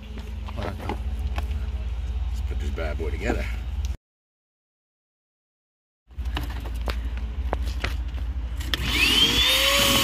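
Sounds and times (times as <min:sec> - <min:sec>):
shop vacuum motor whining: 0:08.6 - 0:10.0.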